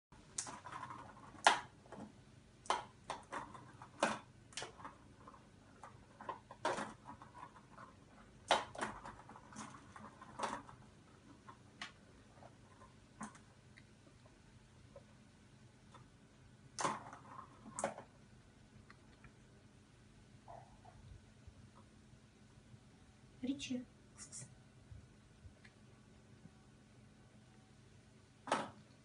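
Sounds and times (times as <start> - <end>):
plastic cat toy ball rattling: 0.3 - 2.1, 3.0 - 13.5.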